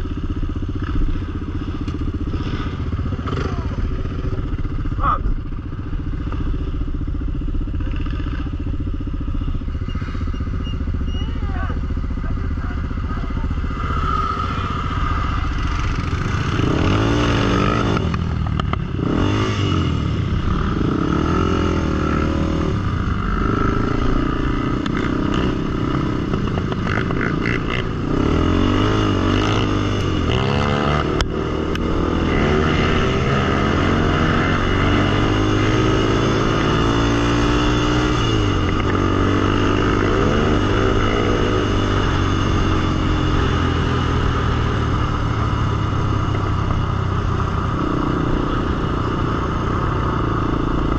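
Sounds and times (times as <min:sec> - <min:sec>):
quad engine revving: 0:11.4 - 0:46.6.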